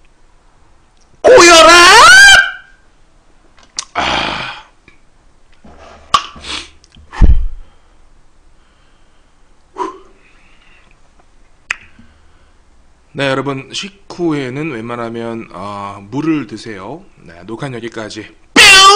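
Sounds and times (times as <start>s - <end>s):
man sneezing: 3.9s - 4.7s, 9.8s - 10.2s.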